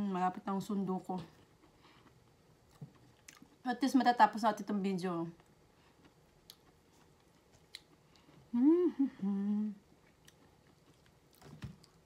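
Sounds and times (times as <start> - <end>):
woman humming: 8.5 - 9.9.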